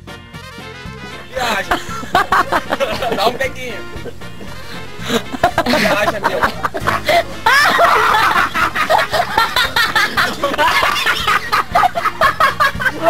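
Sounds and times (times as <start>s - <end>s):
background music with steady beat: 0.0s - 13.0s
person snickering: 4.0s - 13.0s.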